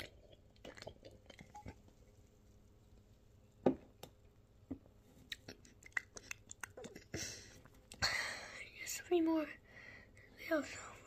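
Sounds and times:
lip smacks and tongue clicks: 5.2s - 7.1s.

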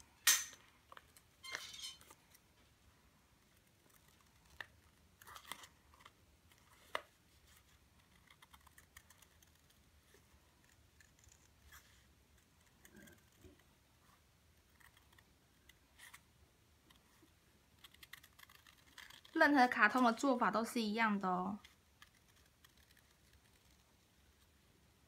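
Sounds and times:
scissors snipping paper: 3.5s - 13.7s, 17.8s - 20.3s, 21.6s - 24.5s
paper crackles: 17.1s - 20.3s.

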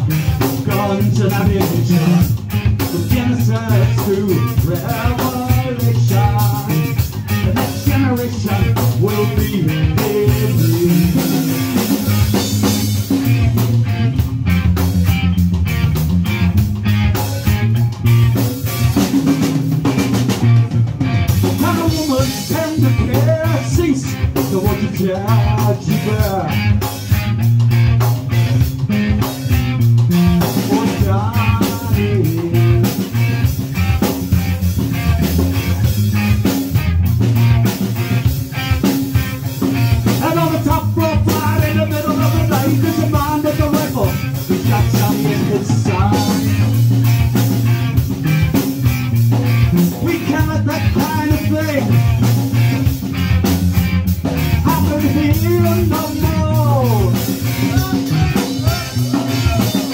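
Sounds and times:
person singing: 0.0s - 12.0s, 21.4s - 26.8s, 30.0s - 33.4s, 39.8s - 46.9s, 49.8s - 52.4s, 54.6s - 59.9s
bass guitar: 0.0s - 59.9s
drum kit beat: 0.0s - 59.9s
electric guitar: 0.0s - 59.9s.

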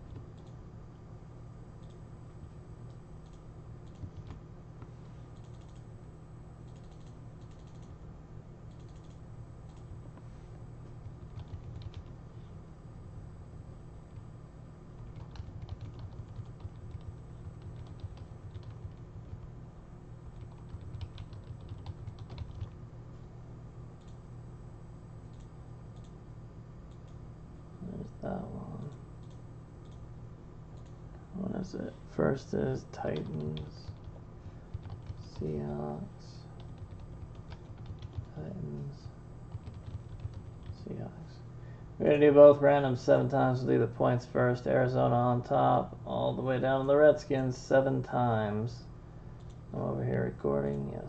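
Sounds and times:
steady low hum: 0.0s - 51.0s
computer mouse clicks: 0.1s - 0.6s, 1.8s - 2.0s, 2.9s - 4.4s, 5.3s - 5.9s, 6.6s - 7.9s, 8.7s - 10.0s, 24.0s - 24.2s, 25.3s - 26.2s, 28.7s - 30.1s, 30.8s - 31.0s, 49.4s - 49.6s.

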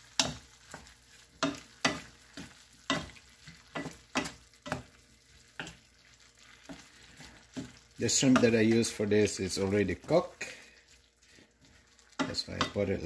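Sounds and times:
spatula scraping frying pan: 0.0s - 9.0s
food sizzling: 0.0s - 13.0s.

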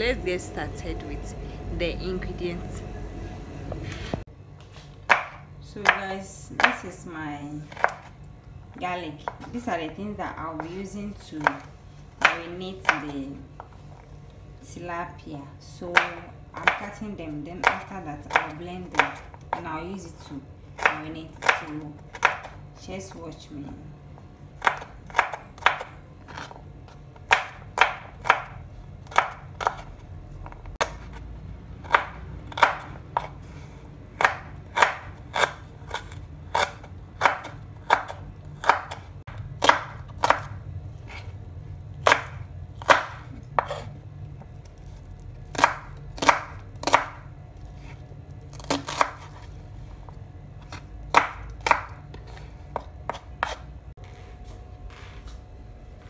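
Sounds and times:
knife chopping on wooden board: 5.0s - 6.0s, 7.7s - 8.1s, 20.8s - 22.6s, 24.6s - 26.6s, 27.2s - 31.2s, 31.8s - 33.6s, 34.2s - 41.3s, 42.0s - 43.9s, 45.5s - 47.2s, 47.8s - 49.5s, 50.6s - 53.7s.

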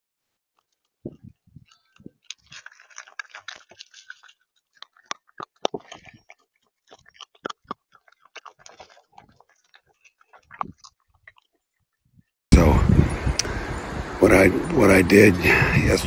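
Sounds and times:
raccoon crunching seed: 0.6s - 11.8s
claws clicking on seed tray: 1.6s - 11.6s.

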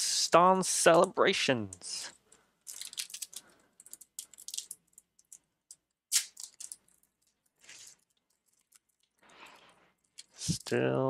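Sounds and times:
foil wrapper crinkling: 2.7s - 5.3s, 6.1s - 9.7s.

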